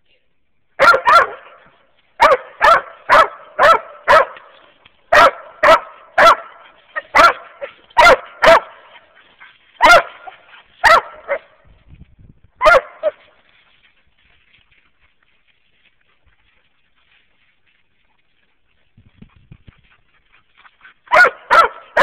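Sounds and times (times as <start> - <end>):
dog barking: 0.8 - 9.0, 9.8 - 11.6, 12.6 - 13.2, 21.1 - 22.0.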